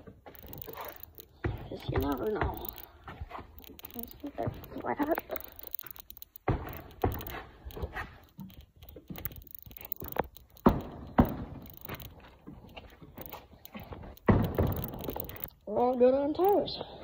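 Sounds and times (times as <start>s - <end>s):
dull thumps on tires: 10.5s - 12.2s, 14.0s - 15.4s.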